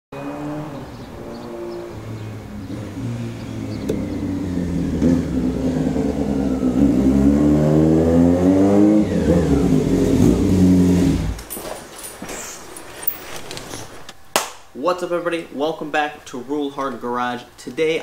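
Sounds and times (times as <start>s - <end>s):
motorcycle engine running: 1.3s - 11.4s.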